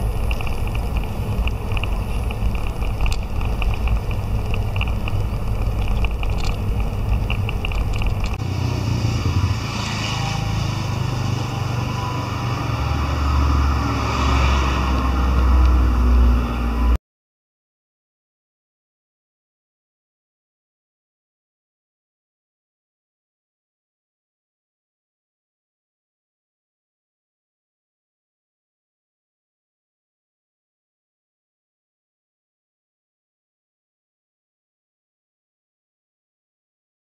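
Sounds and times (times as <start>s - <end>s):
low hum with hiss: 0.0s - 8.4s
low rumble: 0.0s - 9.9s
faint ticks: 0.2s - 8.4s.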